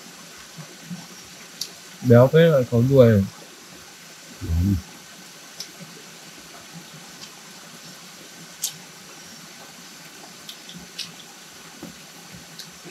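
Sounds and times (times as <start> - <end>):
flowing water rushing: 0.0 - 12.9.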